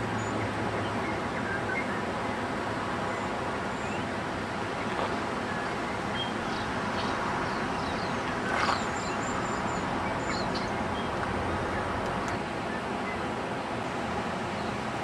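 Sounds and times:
bird calls and chirps: 3.1 - 4.1, 4.8 - 13.3.

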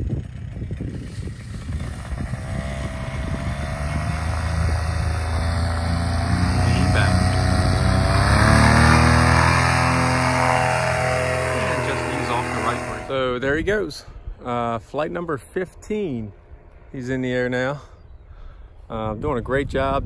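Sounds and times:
paramotor engine running up: 0.0 - 13.7.

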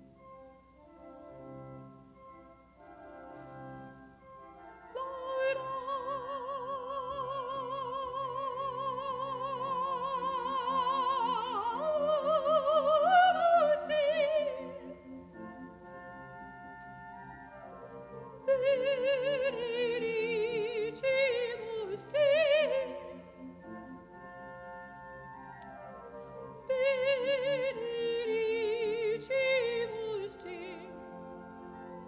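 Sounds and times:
soft instrumental accompaniment: 0.0 - 32.0
woman singing classically: 4.9 - 15.0, 18.4 - 23.4, 26.6 - 31.2.

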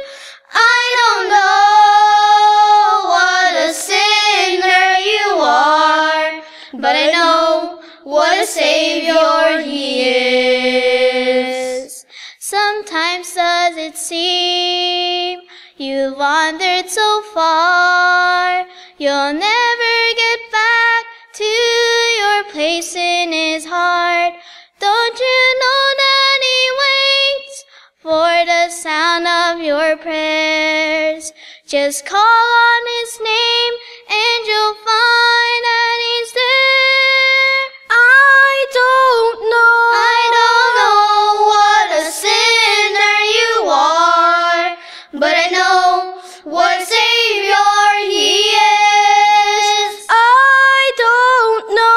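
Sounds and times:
girl singing into a microphone: 0.0 - 51.9.

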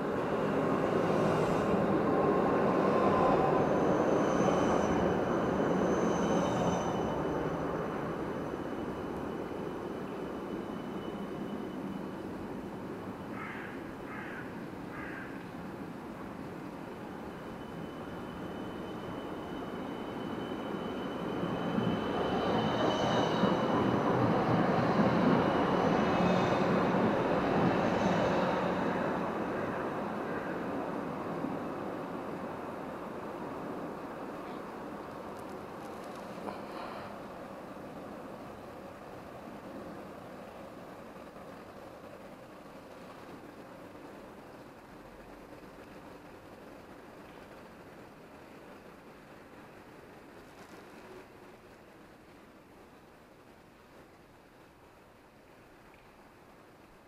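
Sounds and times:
faint high whine: 0.0 - 57.0
tram wheels rumbling on rails: 0.0 - 57.0
thin high-pitched whine: 1.0 - 13.4, 16.7 - 29.0.

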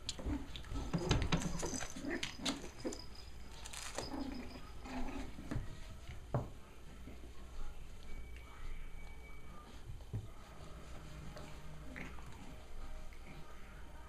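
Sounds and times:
puppy growls: 4.0 - 5.5, 11.6 - 13.6.

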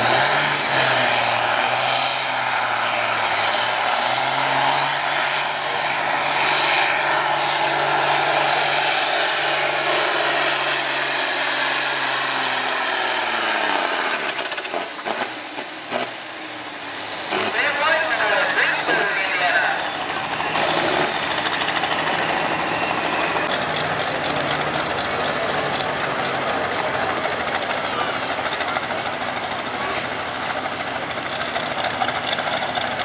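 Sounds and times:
tractor diesel engine under load: 0.0 - 33.0
high whine: 13.1 - 23.9.

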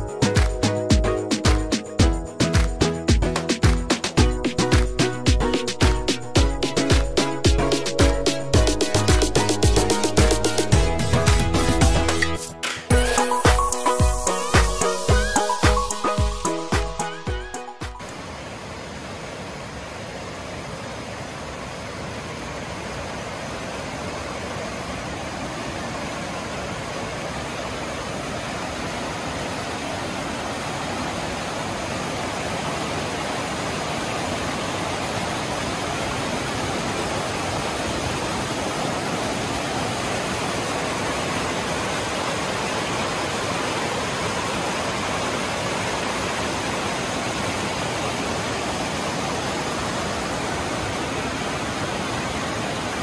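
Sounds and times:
creek rushing over boulders: 18.0 - 53.0.

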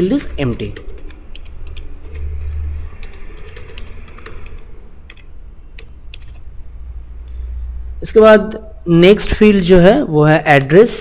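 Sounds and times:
keyboard keys clicking: 0.6 - 6.5.

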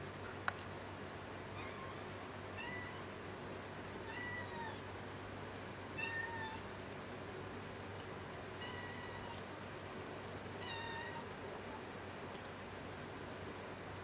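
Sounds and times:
cat meowing: 2.6 - 3.0, 4.0 - 4.8, 6.0 - 6.6, 8.6 - 9.4, 10.6 - 11.4.

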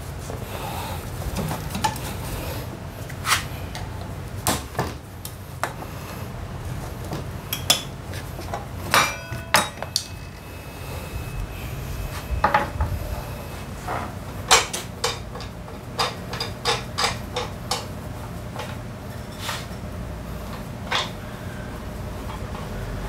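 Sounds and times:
metal tools clinking on concrete: 8.9 - 10.4.

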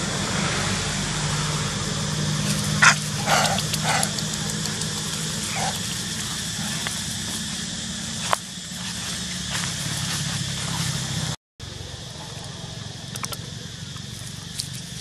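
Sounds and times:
steady low hum: 0.0 - 15.0
bark-like animal calls: 2.5 - 7.2.

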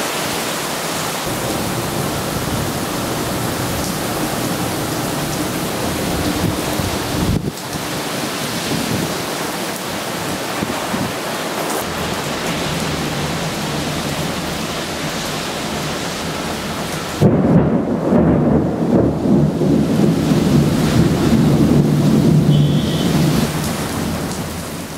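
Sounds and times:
heavy rain pouring: 0.0 - 24.9
low uneven rumble: 1.3 - 7.5.

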